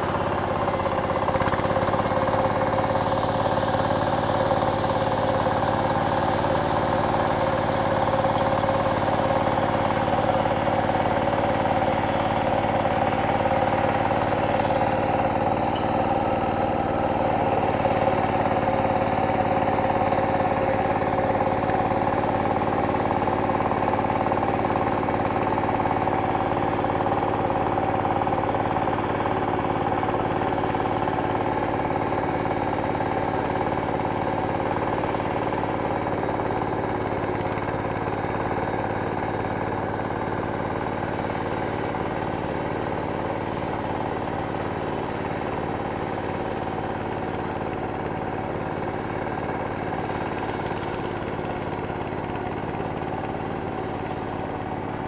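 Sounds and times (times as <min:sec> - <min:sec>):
tractor engine running: 0:00.0 - 0:55.0.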